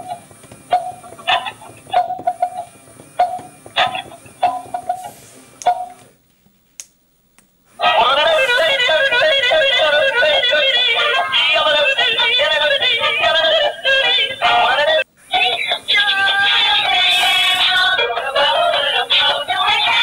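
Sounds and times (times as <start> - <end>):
tinny toy speaker singing with music: 7.8 - 20.0.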